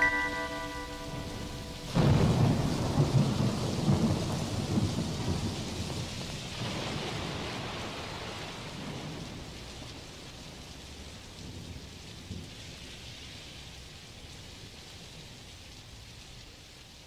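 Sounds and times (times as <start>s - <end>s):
thunder rumbling: 0.0s - 10.0s
steady rain: 0.0s - 17.0s.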